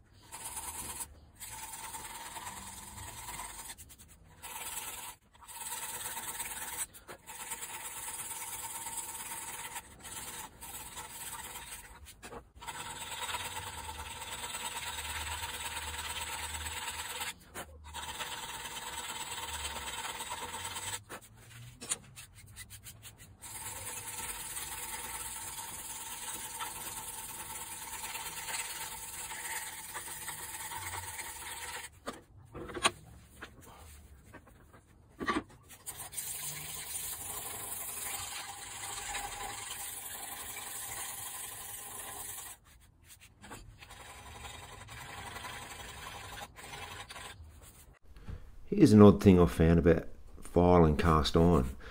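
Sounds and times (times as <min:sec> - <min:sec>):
file rasping on metal: 0:00.2 - 0:21.1, 0:43.7 - 0:47.8.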